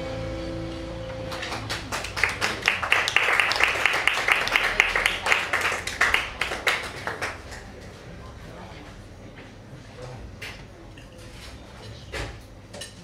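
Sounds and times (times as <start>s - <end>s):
acoustic guitar chord: 0.0s - 1.7s
audience applauding: 1.2s - 7.9s.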